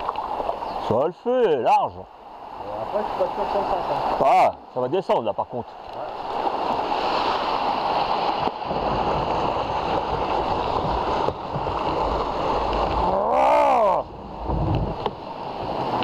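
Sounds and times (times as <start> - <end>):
water rushing and churning: 0.0 - 16.0
person whooping: 13.0 - 14.1.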